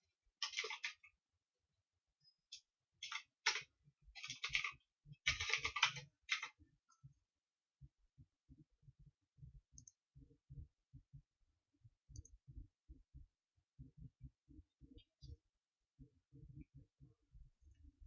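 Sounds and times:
computer mouse and keyboard clicking: 0.4s - 1.1s, 2.5s - 6.6s.

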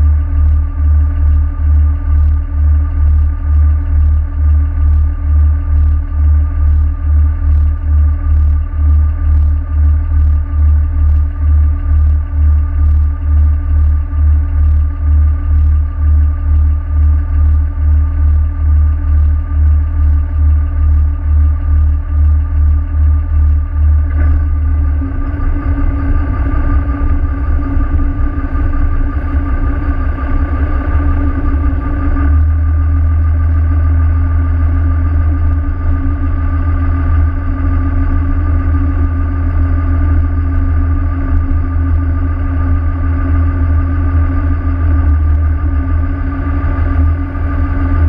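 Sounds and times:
boat engine rumbling: 11.7s - 48.0s.

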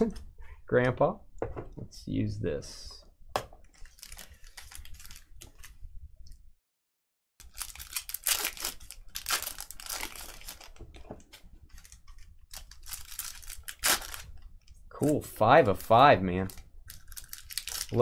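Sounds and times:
card wrappers crinkling and tearing: 3.7s - 5.8s, 7.4s - 14.6s, 15.6s - 18.0s.

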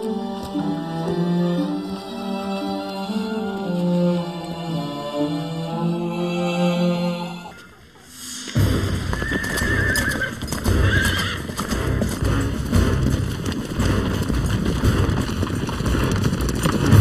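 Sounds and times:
horses galloping on dry earth: 8.6s - 17.0s
horse neighing: 9.0s - 12.0s.

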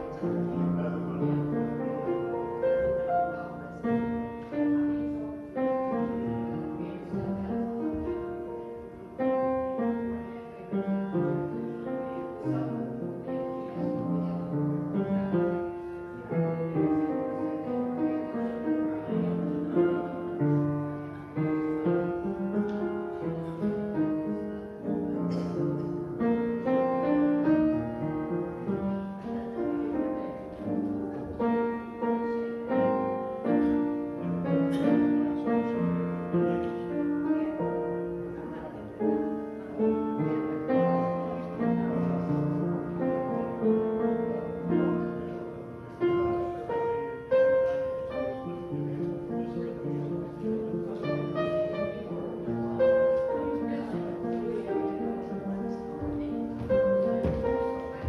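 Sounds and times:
piano piece: 0.0s - 58.0s.

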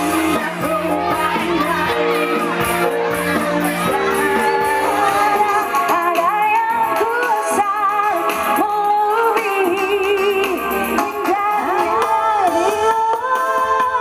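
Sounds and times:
live band music: 0.0s - 14.0s
high wavering melody with vibrato: 0.9s - 6.8s.

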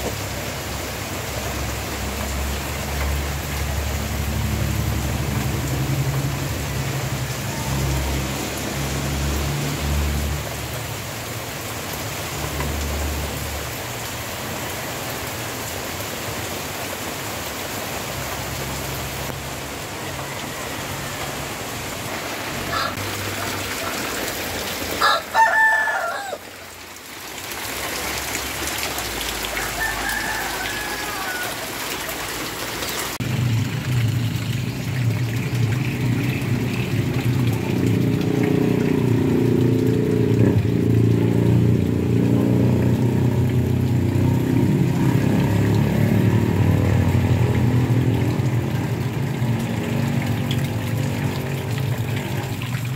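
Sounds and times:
heavy rain: 0.0s - 52.9s
rooster crowing: 20.0s - 21.5s, 22.7s - 23.0s, 25.0s - 26.5s, 29.4s - 32.0s.

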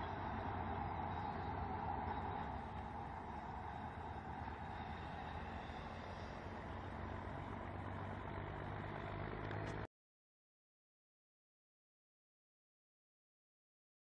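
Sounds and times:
distant diesel locomotive rumble: 0.0s - 9.9s.

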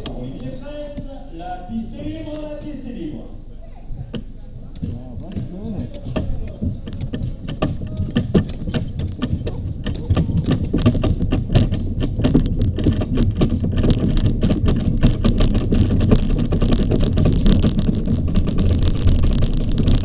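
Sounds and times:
sled runners rattling on ice: 4.8s - 20.0s
low rumble: 4.9s - 20.0s.

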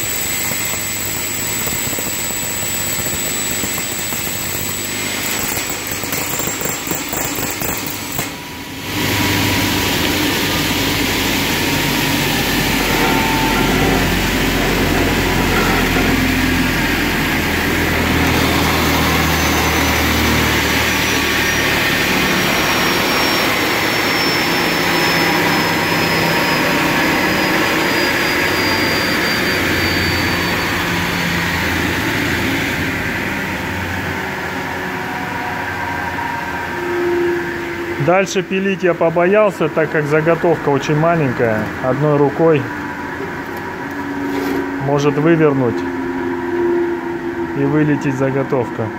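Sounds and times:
saw cutting sheet metal: 0.0s - 32.8s.

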